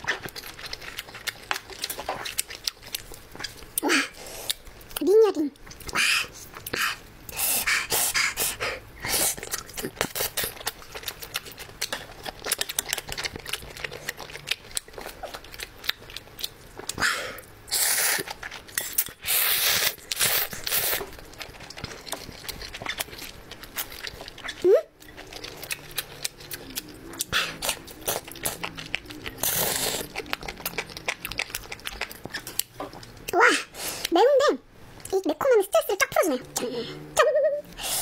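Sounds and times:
person chewing: 0:00.0 - 0:34.1
slurping: 0:16.8 - 0:32.7.

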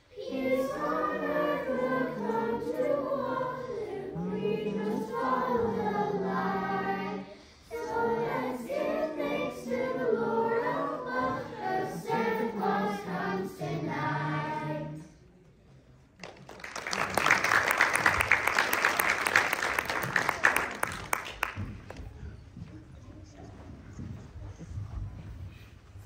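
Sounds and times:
children's choir singing: 0:00.0 - 0:15.2
audience applause: 0:16.2 - 0:22.2.

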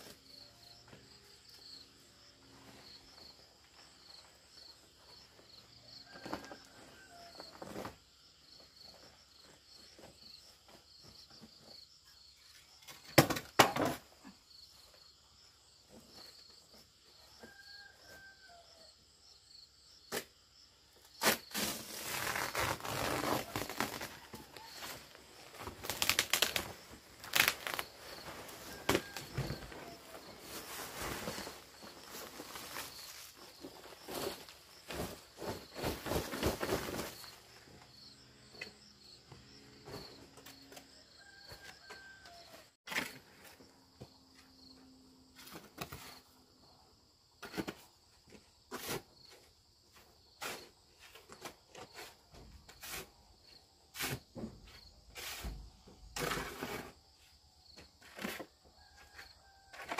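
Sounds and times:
insects chirring: 0:19.2 - 0:41.4.

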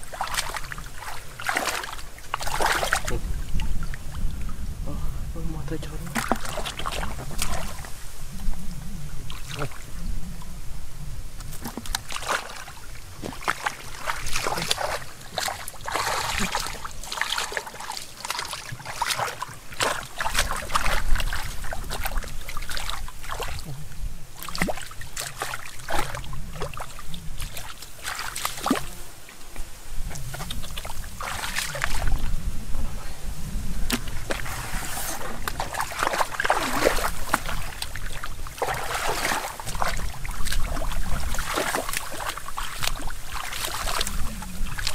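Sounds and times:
hands splashing in muddy water: 0:00.0 - 0:03.7, 0:06.1 - 0:07.9, 0:11.4 - 0:23.6, 0:24.4 - 0:28.9, 0:30.0 - 0:32.3, 0:33.8 - 0:44.9
low steady rumble: 0:03.1 - 0:06.4.

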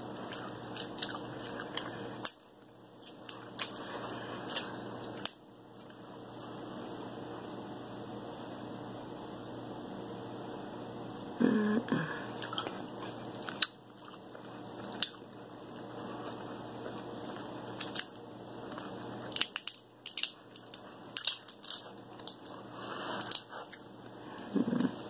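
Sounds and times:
eating sounds: 0:00.0 - 0:02.4, 0:11.5 - 0:25.0
crab shells cracking: 0:03.0 - 0:05.4, 0:19.2 - 0:22.6.

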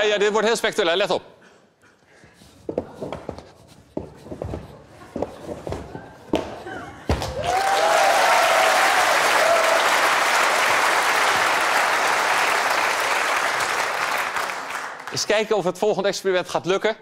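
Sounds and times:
audience applause: 0:07.2 - 0:15.3.

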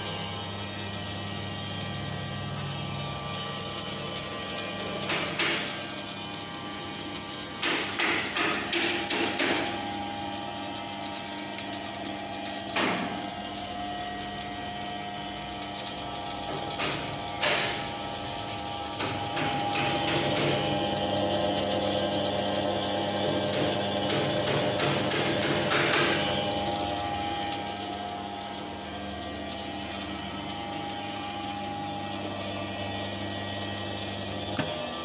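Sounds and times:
band saw motor hum: 0:00.0 - 0:35.0
sharp metallic knocks: 0:07.6 - 0:09.8, 0:16.5 - 0:17.9.

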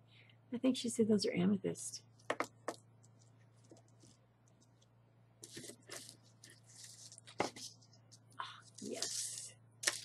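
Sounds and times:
paper rustling and crinkling: 0:05.4 - 0:10.0.

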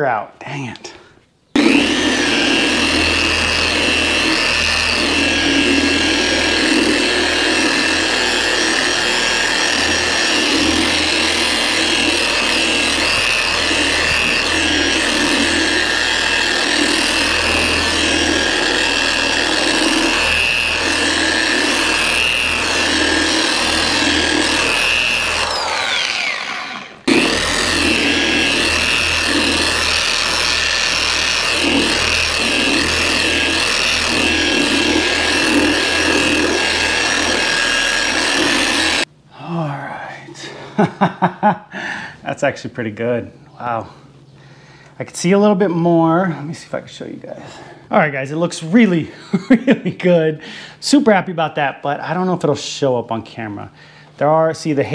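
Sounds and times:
polisher whining: 0:01.6 - 0:39.1.

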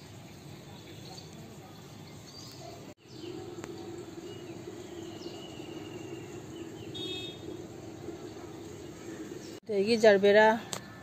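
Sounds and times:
birds chirping: 0:00.2 - 0:11.0
steady low hum: 0:03.0 - 0:09.6.

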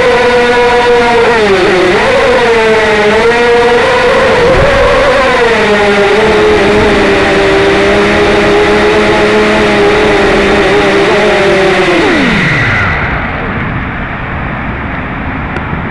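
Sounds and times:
small engine at high revs: 0:00.0 - 0:13.9.

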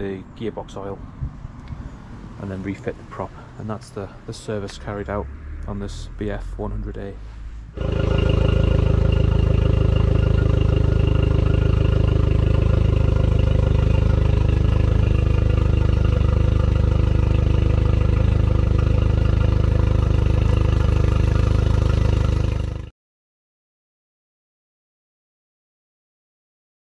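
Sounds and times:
outboard engine running: 0:07.8 - 0:22.9.

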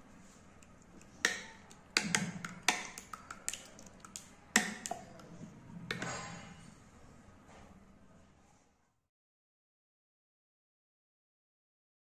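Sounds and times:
spoon beating egg in bowl: 0:00.5 - 0:06.2.

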